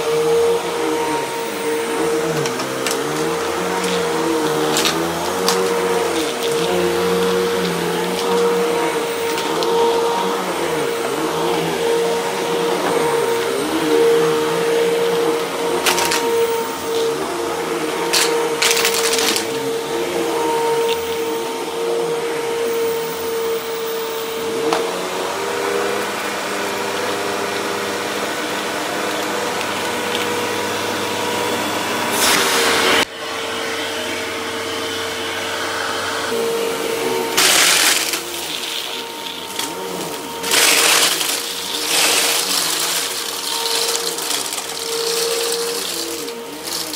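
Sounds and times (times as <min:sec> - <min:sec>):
vacuum cleaner running: 0:00.0 - 0:46.9
debris sucked up: 0:40.4 - 0:46.9.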